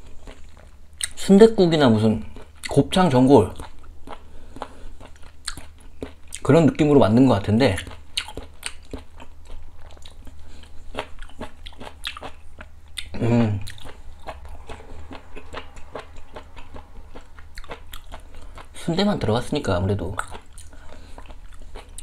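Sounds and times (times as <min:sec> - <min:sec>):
man chewing food: 0:00.0 - 0:01.3, 0:02.2 - 0:02.8, 0:03.5 - 0:06.5, 0:07.7 - 0:18.9, 0:20.1 - 0:22.0
short vocal sound: 0:13.1 - 0:13.7.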